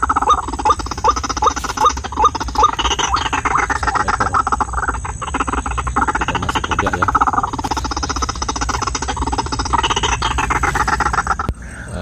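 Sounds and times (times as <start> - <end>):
bird croaking chatter: 0.0 - 12.0.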